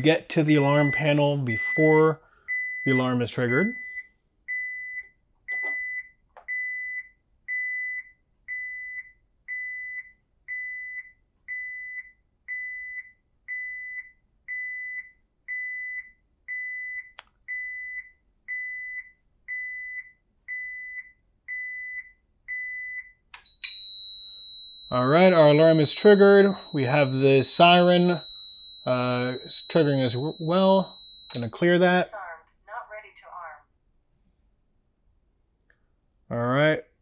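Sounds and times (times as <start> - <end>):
alarm panel beeping: 23.4 - 31.6.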